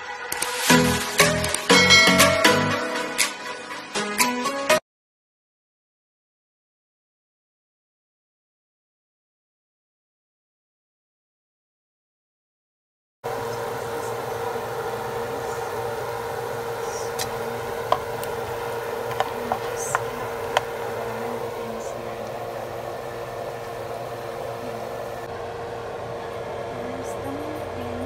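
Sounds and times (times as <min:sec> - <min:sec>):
constant kitchen hum: 0:13.3 - 0:28.0.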